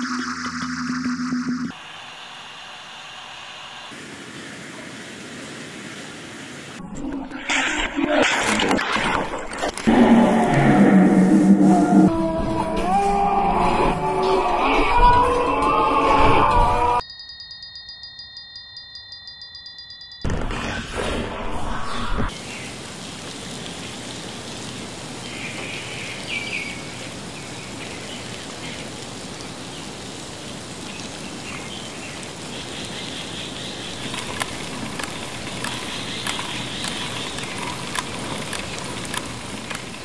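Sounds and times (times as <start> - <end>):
higher hiss: 1.7 - 6.8
rain-like hiss: 1.7 - 6.8, 21.7 - 40.0
faint ticks: 34.0 - 40.0.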